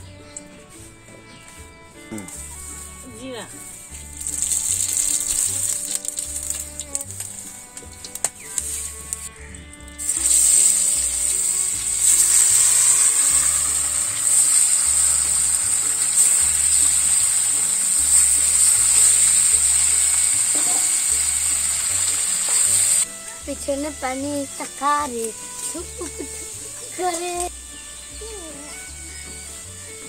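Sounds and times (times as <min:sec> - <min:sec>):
fish sizzling in hot oil: 0:02.3 - 0:23.1, 0:24.0 - 0:30.0.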